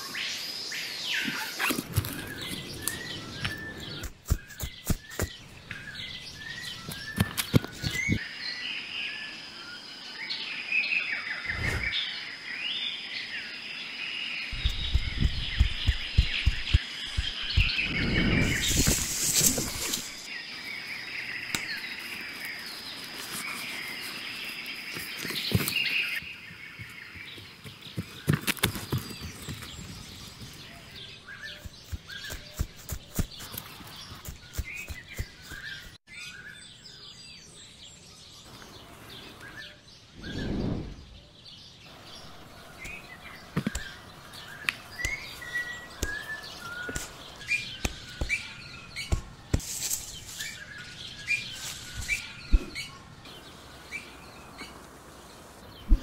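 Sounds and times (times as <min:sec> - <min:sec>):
birds chirping and singing: 0:00.0 - 0:56.0
leaves rustling: 0:14.5 - 0:26.2, 0:41.9 - 0:56.0
footsteps crunching on leaf litter: 0:49.1 - 0:52.3.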